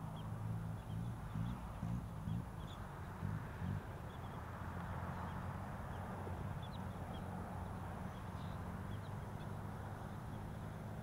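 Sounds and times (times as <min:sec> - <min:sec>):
low outdoor rumble: 0:00.0 - 0:11.0
small birds chirping: 0:00.0 - 0:11.0.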